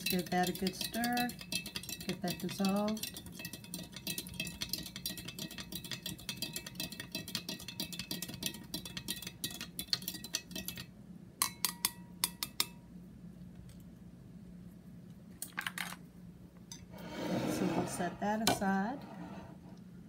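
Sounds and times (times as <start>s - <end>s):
spoon clinking in a cup: 0.0s - 12.8s
low steady hum: 0.0s - 20.0s.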